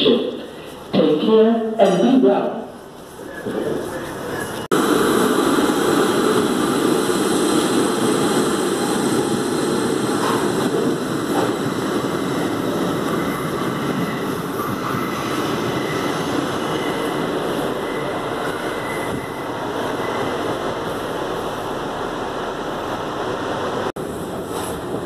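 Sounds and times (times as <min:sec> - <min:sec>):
subway train rumbling at platform: 0:00.0 - 0:25.0.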